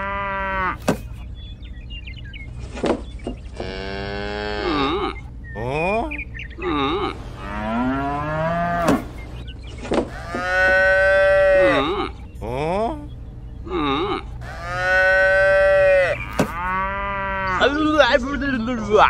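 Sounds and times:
cattle mooing: 0.0 - 0.8, 3.6 - 5.3, 6.6 - 9.3, 10.1 - 12.3, 13.7 - 17.8.

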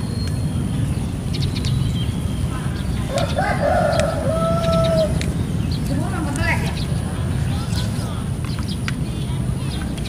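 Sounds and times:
low background rumble: 0.0 - 10.0
rooster crowing: 3.1 - 5.2.

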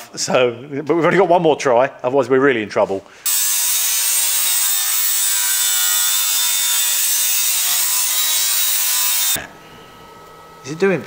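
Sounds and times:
power tool cutting sheet steel: 3.2 - 9.4.

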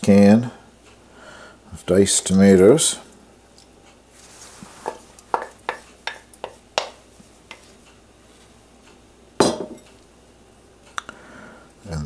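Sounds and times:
kitchenware clinking on steel pot: 9.4 - 9.9.

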